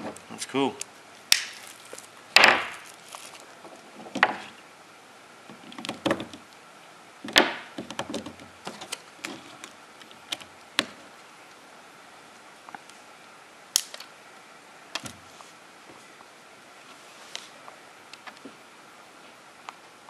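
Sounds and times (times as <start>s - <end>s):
packaging rustling: 1.5s - 3.8s.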